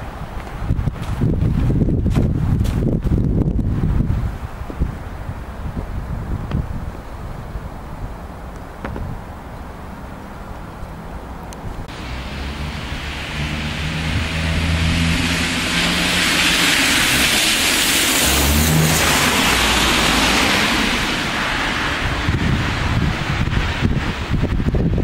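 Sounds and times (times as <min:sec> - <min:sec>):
car driving past: 0:11.9 - 0:22.8.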